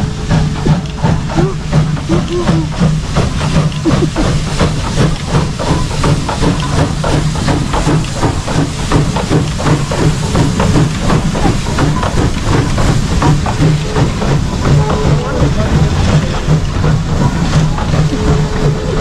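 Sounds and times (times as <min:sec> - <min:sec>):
steam locomotive passing: 0:00.0 - 0:19.0.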